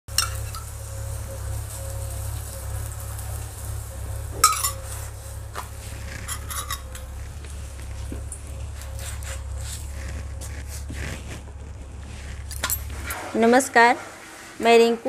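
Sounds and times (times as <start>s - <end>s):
steel spoon clinking bowl: 0.1s - 0.7s, 4.4s - 5.0s, 6.2s - 7.2s
light sizzle: 0.1s - 15.0s
steady low hum: 0.1s - 15.0s.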